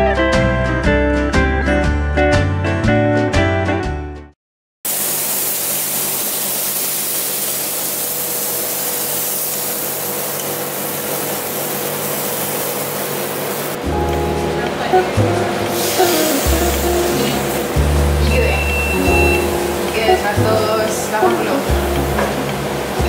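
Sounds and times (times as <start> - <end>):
background music: 0.0 - 4.3, 13.8 - 23.0
batter sizzling on hot plate: 4.9 - 13.8, 15.7 - 18.0.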